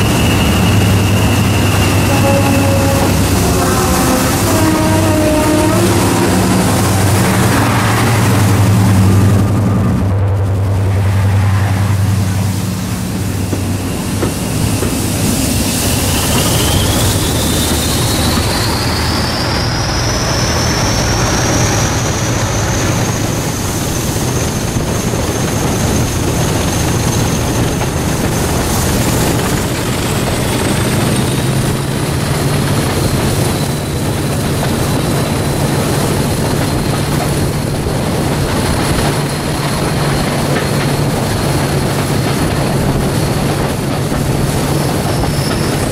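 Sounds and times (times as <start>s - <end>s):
high whine: 0.0s - 30.8s
diesel locomotive engines drone: 0.0s - 45.9s
wheel and rail noise: 0.0s - 45.9s.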